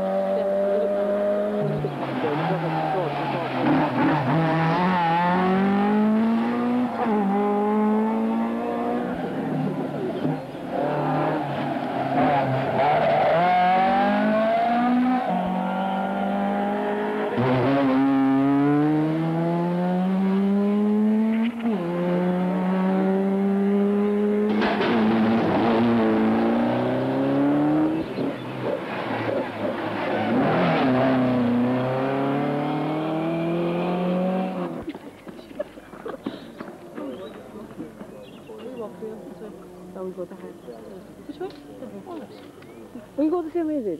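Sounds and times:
rally cars accelerating hard: 0:00.0 - 0:34.9.

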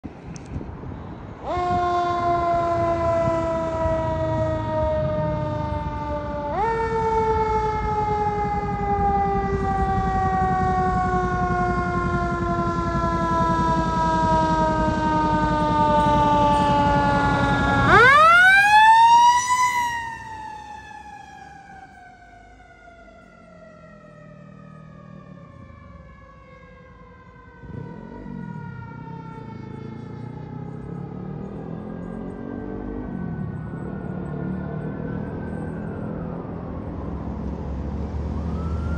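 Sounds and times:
truck engine rumble: 0:00.0 - 0:38.9
siren winding up and down: 0:01.5 - 0:25.4, 0:38.3 - 0:38.9.

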